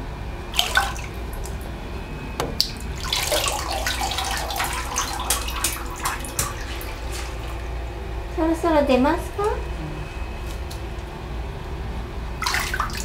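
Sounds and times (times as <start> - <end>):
water sloshing and splashing: 0.5 - 1.8, 2.4 - 8.0, 12.4 - 13.0.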